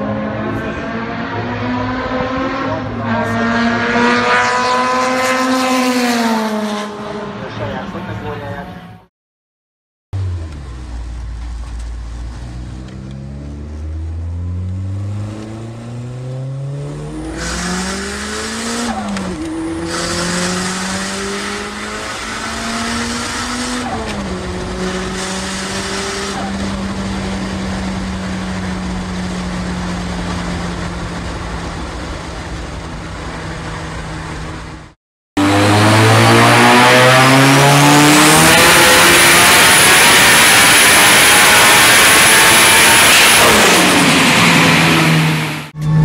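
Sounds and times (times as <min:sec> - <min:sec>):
car engine accelerating from cabin: 0:10.2 - 0:34.8, 0:35.4 - 0:46.0.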